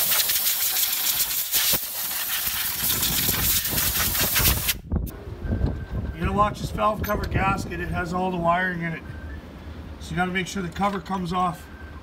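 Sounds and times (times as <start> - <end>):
air blowgun hissing: 0.0 - 4.8.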